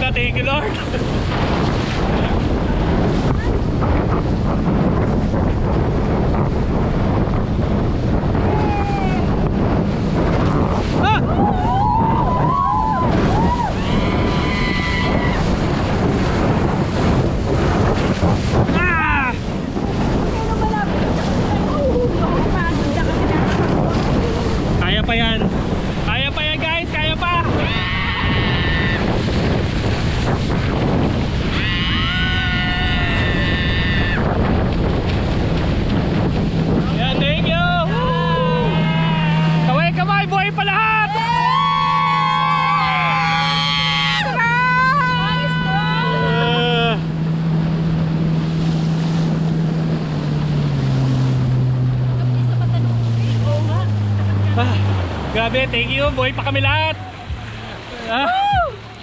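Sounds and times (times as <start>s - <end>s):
water rushing and splashing: 0.0s - 59.0s
wind blasting microphone: 0.0s - 59.0s
people crying out: 31.5s - 34.3s, 37.8s - 39.7s, 41.0s - 47.0s, 58.0s - 58.9s
people shouting and shrieking: 31.5s - 34.3s, 37.8s - 39.8s, 40.7s - 46.9s.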